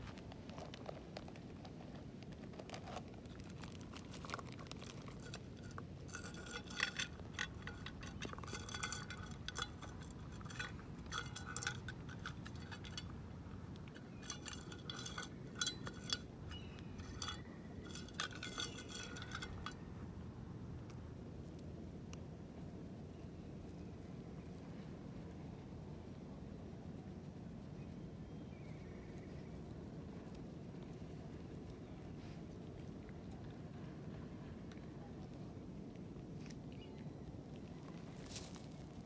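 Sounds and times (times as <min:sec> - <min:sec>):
metal tin clinking on gravel: 0:02.7 - 0:20.0, 0:38.2 - 0:39.0.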